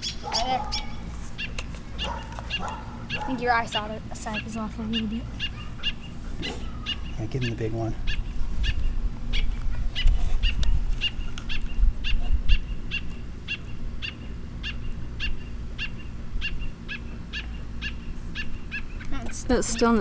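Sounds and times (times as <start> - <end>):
baby bird begging chirps: 0.0 - 20.0.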